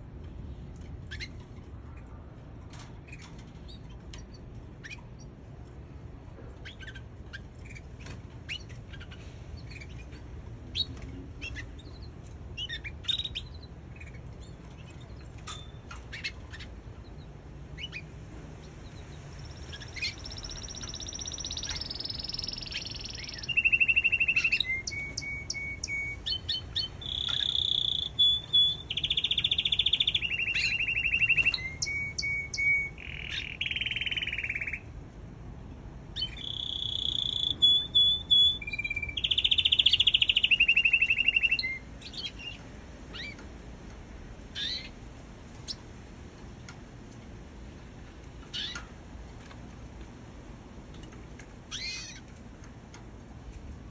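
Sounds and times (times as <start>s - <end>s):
canary singing: 0.8s - 2.2s, 3.0s - 35.0s, 36.1s - 43.6s, 44.5s - 45.0s, 48.4s - 48.9s, 51.6s - 52.5s.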